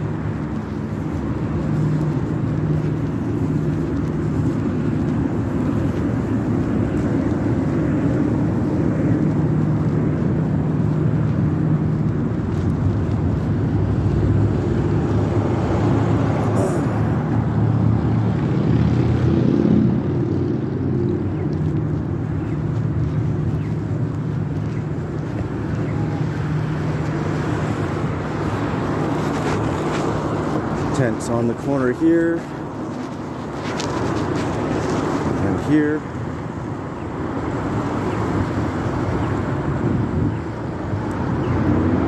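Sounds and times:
car engines rumbling: 0.0s - 42.0s
tyre noise on road: 0.0s - 42.0s.

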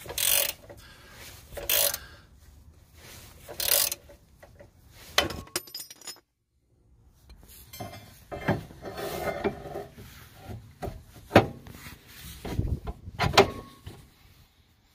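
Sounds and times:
metal grinding and rubbing: 7.6s - 10.5s.

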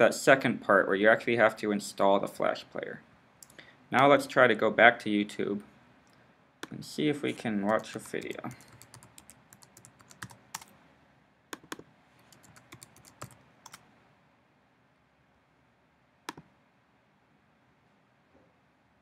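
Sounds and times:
computer keyboard typing: 7.7s - 10.7s, 11.6s - 13.8s.

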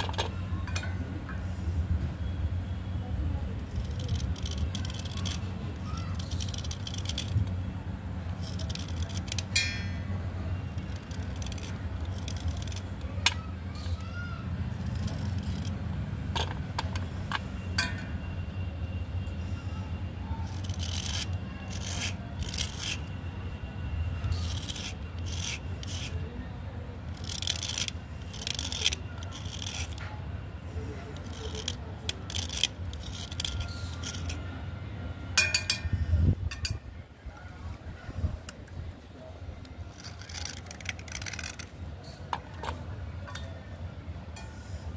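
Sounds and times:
metal blade scraping clay: 3.7s - 7.5s, 8.3s - 10.0s, 10.7s - 14.0s, 14.8s - 18.0s, 20.4s - 23.1s, 24.2s - 26.2s, 27.1s - 30.0s, 31.0s - 34.4s, 39.9s - 43.6s.

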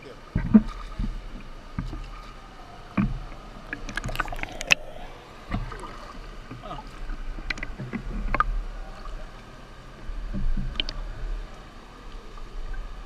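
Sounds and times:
water splashes: 0.4s - 9.4s
low rumble: 3.9s - 7.5s.

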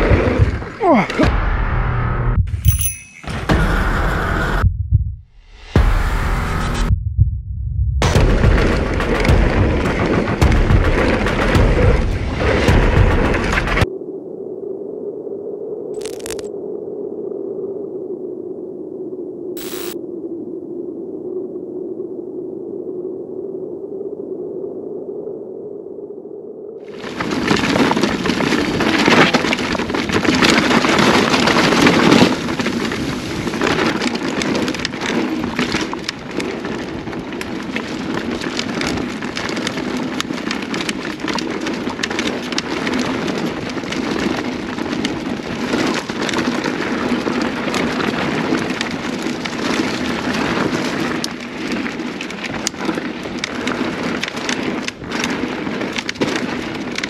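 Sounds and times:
bike clicks and rattles: 27.0s - 57.0s.

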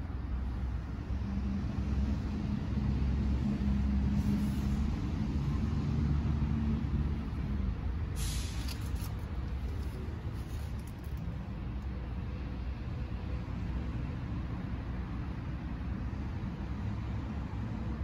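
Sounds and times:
road vehicle engine rumble: 0.0s - 18.0s
short hiss: 8.2s - 9.9s.

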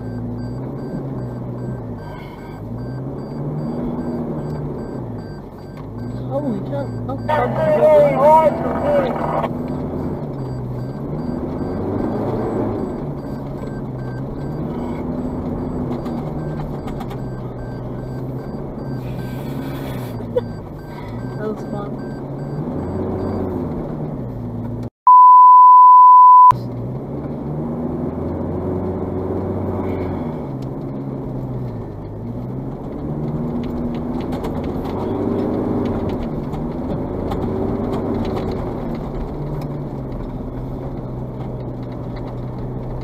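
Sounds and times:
loud steady beep: 0.0s - 9.3s, 10.0s - 23.5s, 25.1s - 26.6s
vehicle engine revving: 0.0s - 24.9s, 26.6s - 43.0s.

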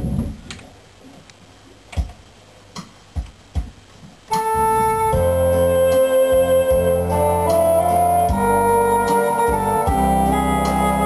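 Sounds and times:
electronic organ sustained notes: 4.3s - 11.0s.

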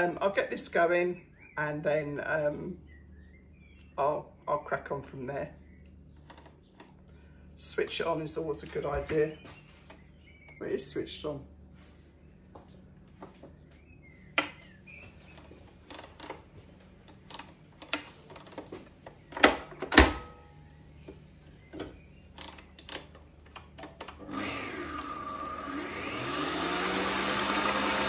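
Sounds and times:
stand mixer motor hum: 24.2s - 28.0s.

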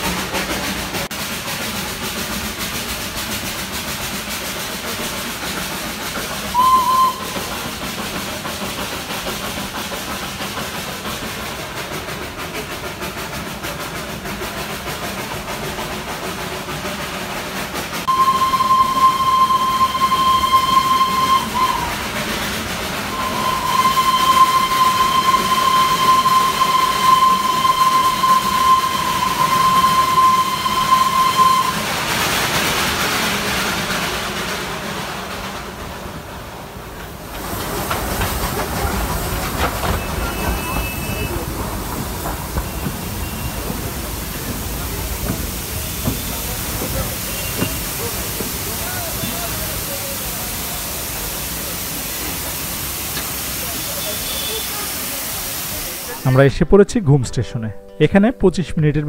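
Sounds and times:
train running noise: 0.0s - 56.5s
steam locomotive whistle: 6.5s - 7.5s, 18.1s - 22.1s, 23.1s - 32.1s, 39.8s - 41.5s, 42.5s - 50.3s, 51.7s - 55.8s.

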